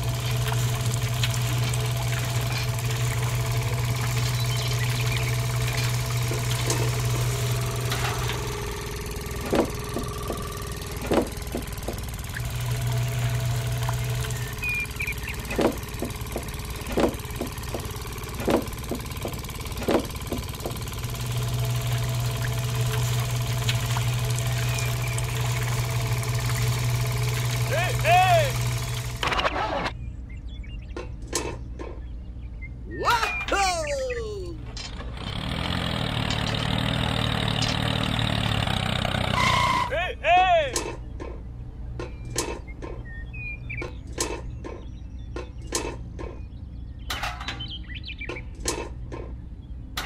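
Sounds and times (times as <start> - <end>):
small motor humming: 0.0 - 30.0, 34.9 - 39.9.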